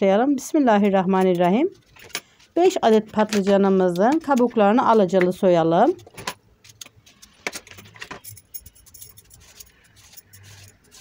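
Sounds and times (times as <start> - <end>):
vegetable peeler scraping: 9.2 - 11.0.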